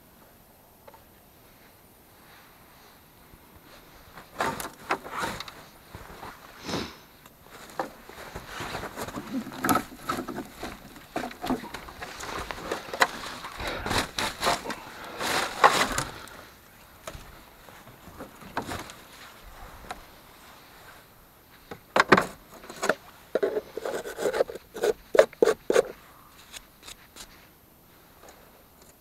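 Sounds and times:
knocks and clicks of handling parts: 21.7s - 26.0s.

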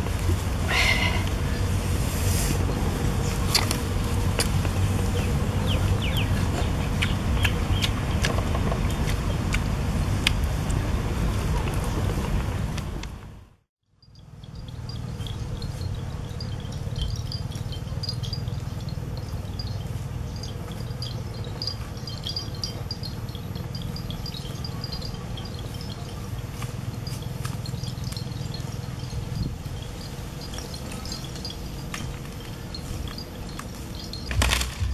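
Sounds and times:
high chirps: 14.0s - 34.9s.

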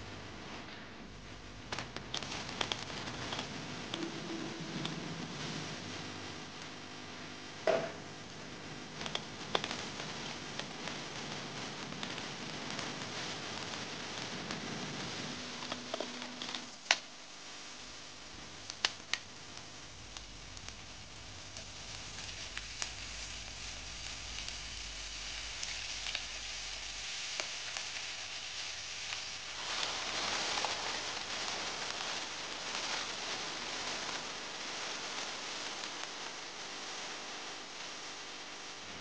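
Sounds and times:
meat and onions sizzling in pan: 18.4s - 38.8s.

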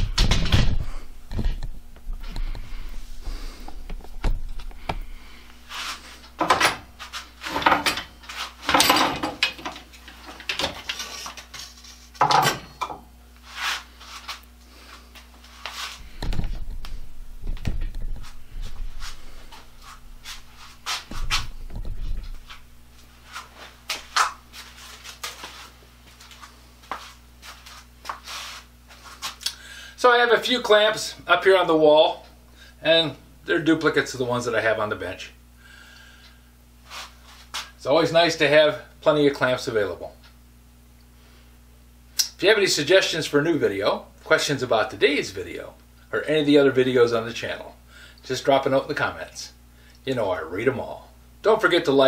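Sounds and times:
dull thumps: 16.1s - 22.7s.

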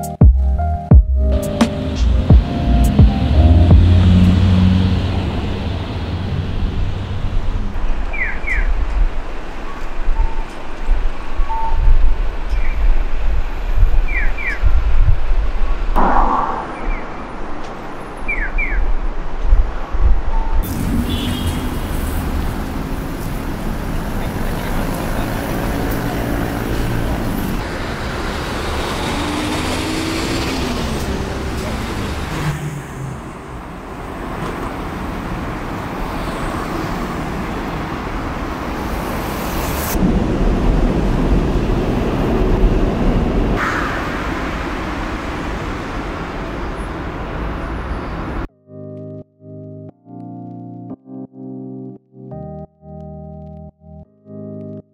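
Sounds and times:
low traffic rumble: 1.3s - 11.4s, 12.1s - 48.5s
deep rumble: 16.0s - 18.3s.

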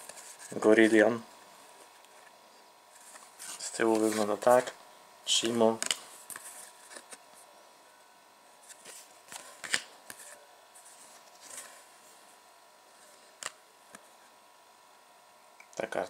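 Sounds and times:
cards sliding and flicking: 3.0s - 4.7s, 5.7s - 7.2s, 8.7s - 11.8s.

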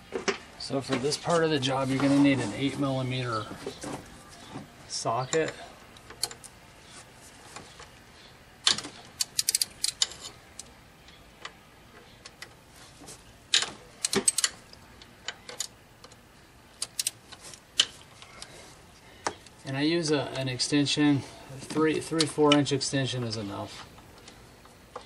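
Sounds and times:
ratchet wrench clicking: 9.2s - 10.1s, 13.5s - 14.5s.

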